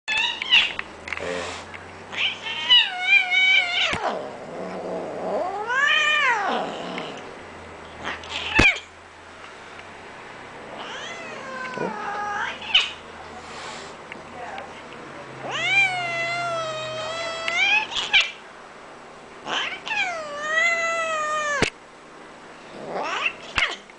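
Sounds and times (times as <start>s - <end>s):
cat meowing: 10.8s - 13.0s, 15.4s - 18.4s, 19.5s - 21.7s.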